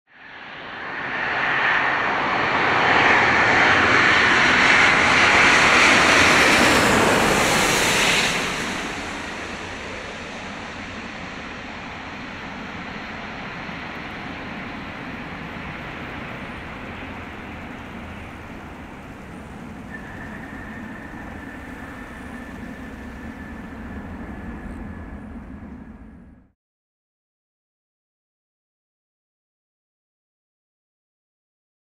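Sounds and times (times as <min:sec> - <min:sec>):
jet airliner engine roar: 0:00.1 - 0:26.6
high whine: 0:00.4 - 0:26.5.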